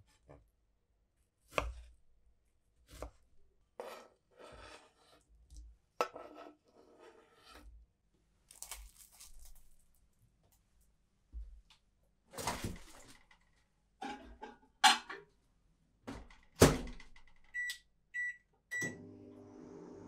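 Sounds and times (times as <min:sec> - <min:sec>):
microwave running hum: 0:18.7 - 0:20.0.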